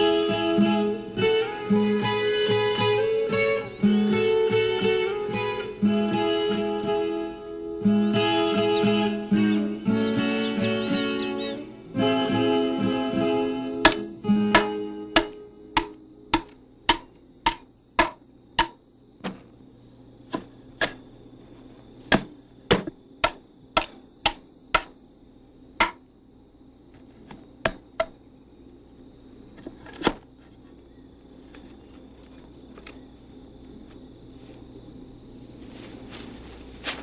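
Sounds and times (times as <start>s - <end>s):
tool chopping into timber: 13.9s - 19.4s, 22.1s - 25.0s.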